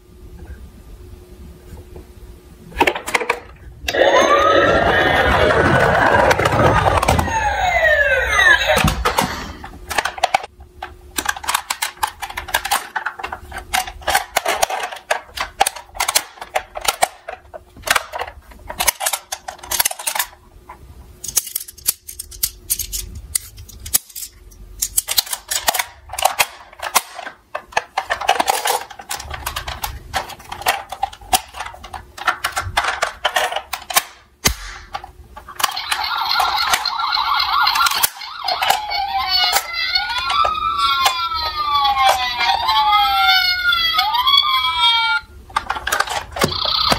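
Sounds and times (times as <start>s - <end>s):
electronic toy siren: 3.9s - 9.0s, 35.6s - 45.3s, 46.4s - 46.9s
plastic toy parts clattering: 8.4s - 20.4s, 21.2s - 43.8s, 45.5s - 46.9s.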